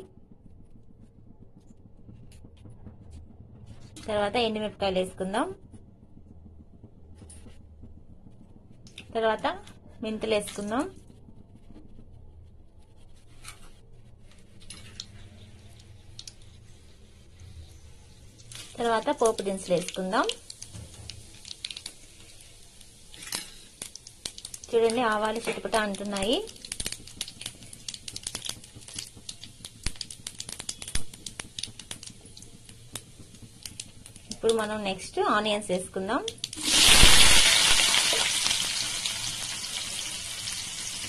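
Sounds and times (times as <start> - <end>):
steady low hum: 0.0 - 21.3
small sharp crackles: 12.9 - 16.9, 18.2 - 35.2, 36.1 - 41.0
spices sizzling in hot oil: 14.3 - 41.0.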